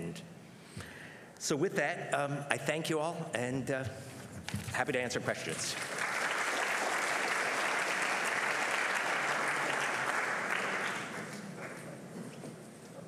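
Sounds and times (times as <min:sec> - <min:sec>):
audience applauding: 0:05.7 - 0:12.0.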